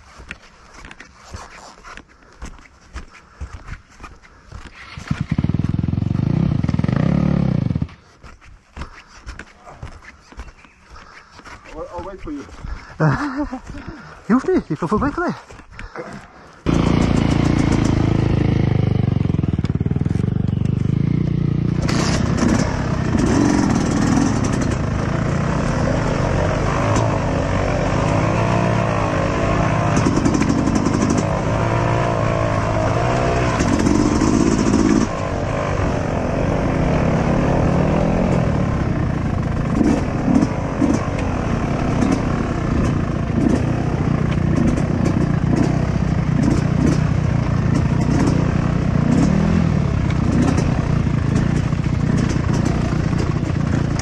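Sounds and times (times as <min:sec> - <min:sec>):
dirt bike engine revving: 0:04.7 - 0:08.1, 0:16.6 - 0:54.0.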